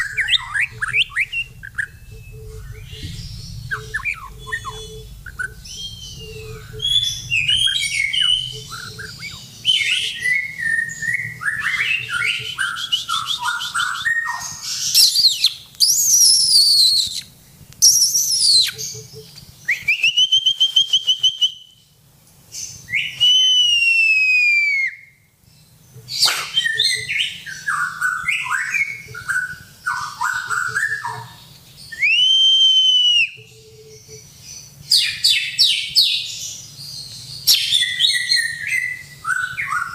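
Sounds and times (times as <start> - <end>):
long clear bird whistle: 0.0 - 18.8, 19.6 - 21.9, 22.6 - 25.3, 31.8 - 34.2
bird singing: 0.0 - 39.9.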